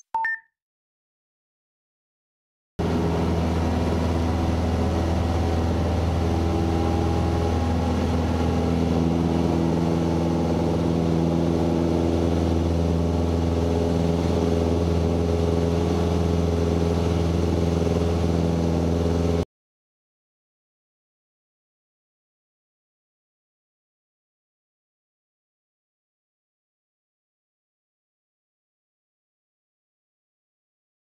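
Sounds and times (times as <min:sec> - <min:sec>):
aircraft engine and propeller: 0:02.8 - 0:19.4.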